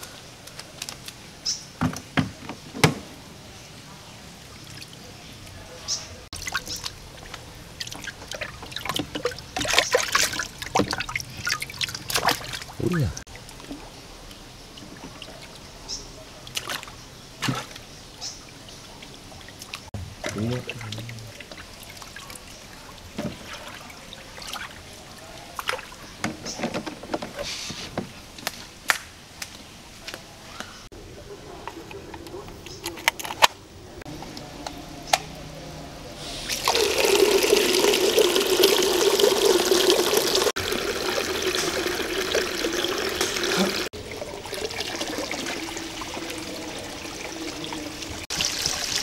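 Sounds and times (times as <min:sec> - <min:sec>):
water splashes: 0:06.3 - 0:13.9, 0:16.4 - 0:26.2, 0:36.2 - 0:49.0
water trickling: 0:06.4 - 0:17.0, 0:17.6 - 0:26.2, 0:36.4 - 0:49.0.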